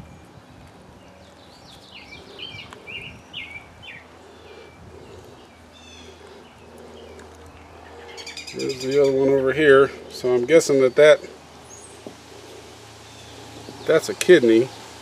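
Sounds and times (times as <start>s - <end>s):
songbirds chirping: 0.0s - 15.0s
bird trill: 7.7s - 9.5s.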